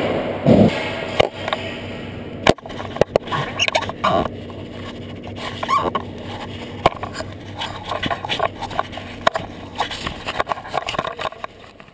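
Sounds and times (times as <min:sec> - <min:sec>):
knocks and rubbing on camera: 0:02.5 - 0:11.9.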